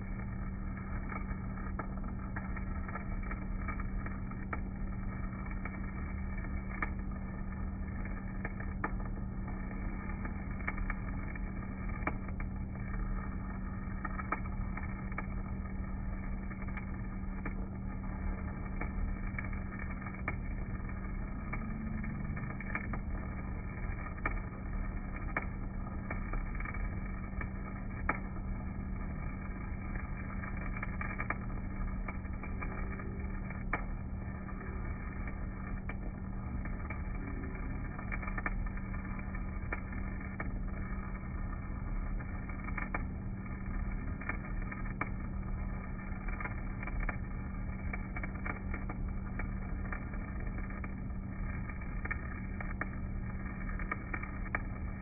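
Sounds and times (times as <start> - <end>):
welding arc crackling and popping: 0.0 - 55.0
welding generator hum: 0.0 - 55.0.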